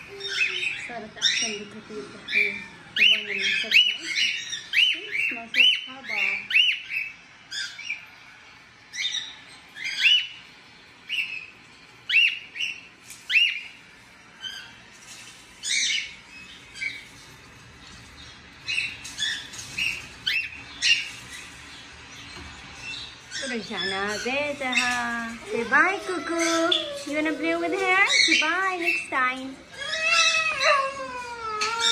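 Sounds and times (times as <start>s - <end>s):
raspy squawks: 22.8s - 31.9s.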